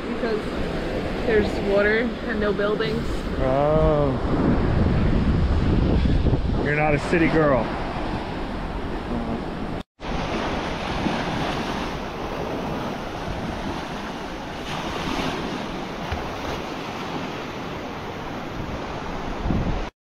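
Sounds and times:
ocean surf breaking: 0.0 - 19.9
wind rumbling on microphone: 0.0 - 19.9.

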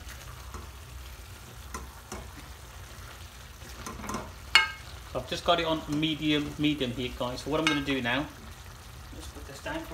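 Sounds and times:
spatula stirring and scraping: 0.0 - 5.0
meat and vegetables sizzling: 0.0 - 9.9
spatula knocking on pan: 4.1 - 4.8.

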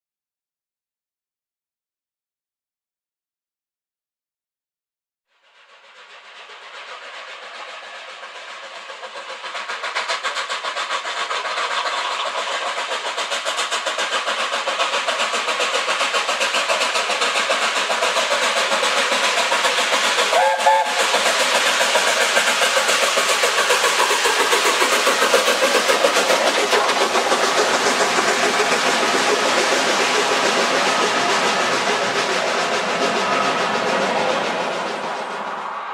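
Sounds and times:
steam locomotive passing: 5.3 - 35.9
coaches running on rails: 5.4 - 35.9
train whistle toot: 20.3 - 21.1.

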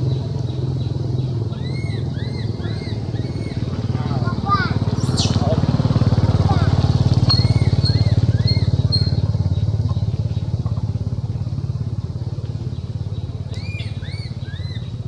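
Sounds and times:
engine running: 0.0 - 15.0
short rising-and-falling chirps: 5.0 - 5.6.

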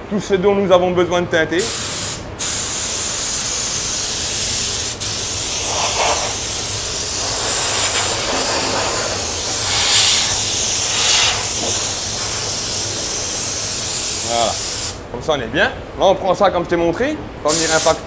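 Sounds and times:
paint spray gun hissing: 1.7 - 15.0.

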